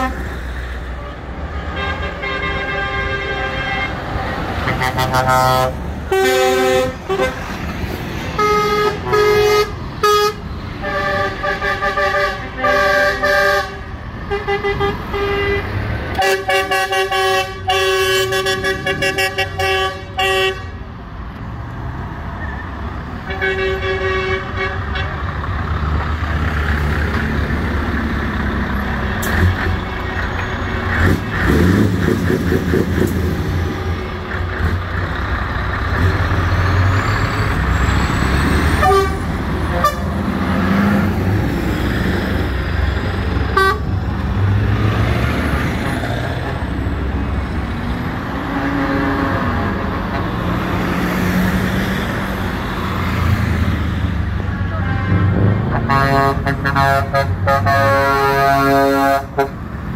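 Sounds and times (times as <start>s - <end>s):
air horn: 0.0s - 0.2s, 1.0s - 7.4s, 8.4s - 20.8s, 23.2s - 25.2s, 38.8s - 40.1s, 43.5s - 43.9s, 54.7s - 59.6s
diesel lorry engines rumbling: 0.0s - 59.9s.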